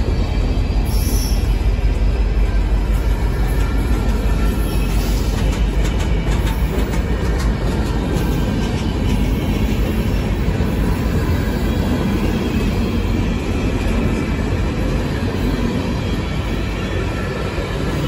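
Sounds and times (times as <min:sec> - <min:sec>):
train wheels rumbling on rails: 0:00.0 - 0:18.0.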